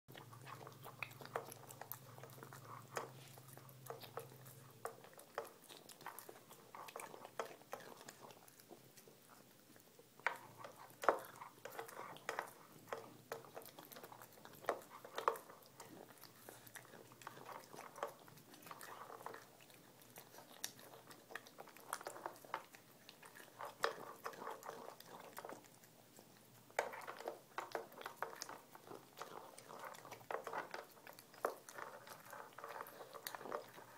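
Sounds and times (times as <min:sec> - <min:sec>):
cat chewing food: 0:00.1 - 0:33.9.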